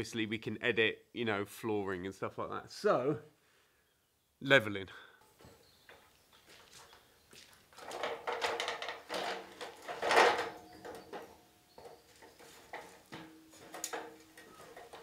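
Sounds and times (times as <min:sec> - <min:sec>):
aluminium ladder rattling and clanking: 0:07.8 - 0:15.0
ladder knocks: 0:07.8 - 0:15.0.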